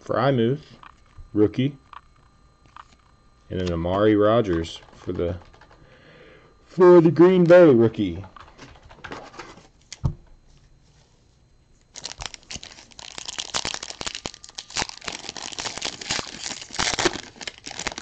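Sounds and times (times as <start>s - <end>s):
foil wrapper crinkling and tearing: 11.9s - 18.0s.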